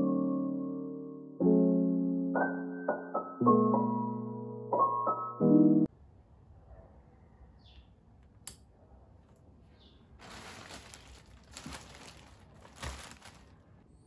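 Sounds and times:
plastic mailer bag crinkling: 0:10.2 - 0:13.8.

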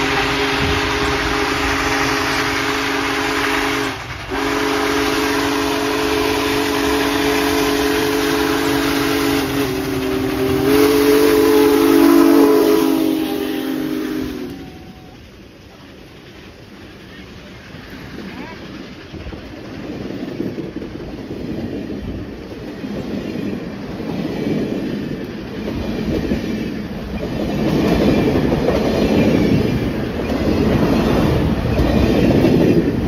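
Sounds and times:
steam locomotive whistle: 0:00.0 - 0:15.3
venting steam hiss: 0:00.0 - 0:24.0
train running: 0:00.0 - 0:33.0.

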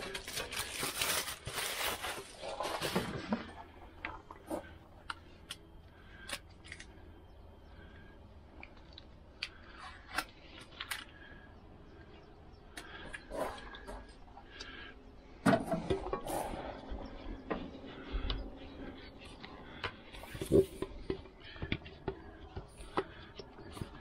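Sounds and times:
plastic packaging rustling: 0:00.0 - 0:03.6.

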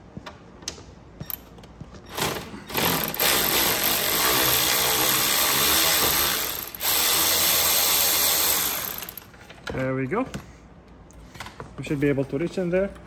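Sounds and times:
cordless power ratchet running: 0:02.2 - 0:09.3.

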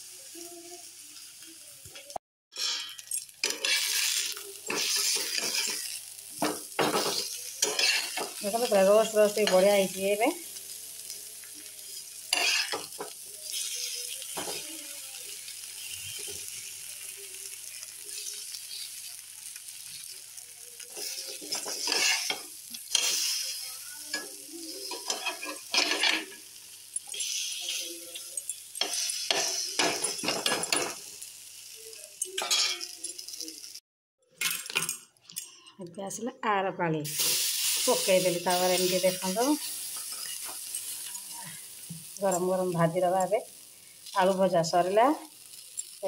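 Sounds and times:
potato slices sizzling on griddle: 0:00.0 - 0:33.8, 0:37.1 - 0:46.0
metal spatula scraping pan: 0:02.6 - 0:06.0, 0:06.9 - 0:08.4, 0:12.3 - 0:12.9, 0:20.9 - 0:23.5, 0:24.2 - 0:26.4.

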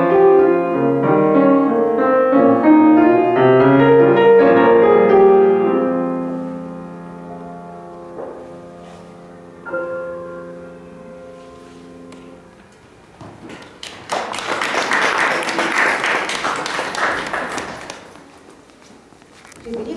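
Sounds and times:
piano chord ringing: 0:00.0 - 0:12.6
audience applause: 0:13.6 - 0:18.3.

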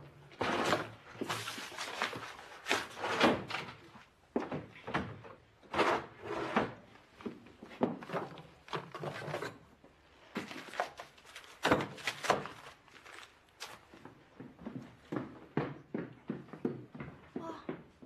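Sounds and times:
knocks and thumps on wooden shelves: 0:14.3 - 0:18.0.

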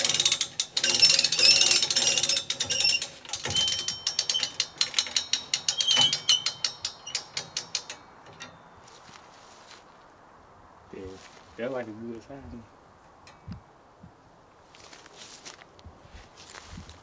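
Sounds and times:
winch ratchet clicking: 0:00.0 - 0:08.6.

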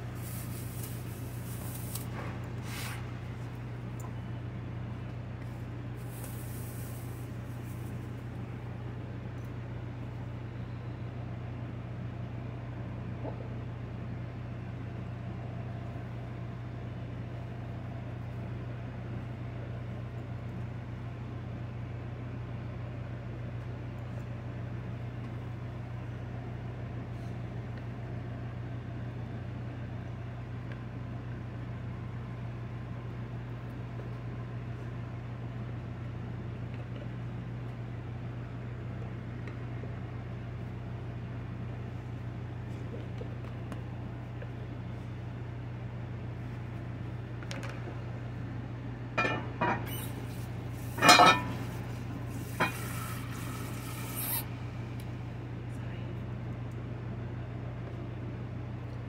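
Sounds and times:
steady low hum: 0:00.0 - 0:59.0
even hiss: 0:49.9 - 0:54.5.

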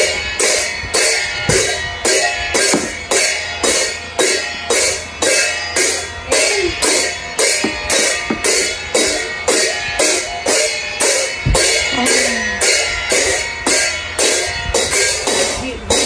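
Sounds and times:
brass hand cymbals clashing: 0:00.0 - 0:16.0.

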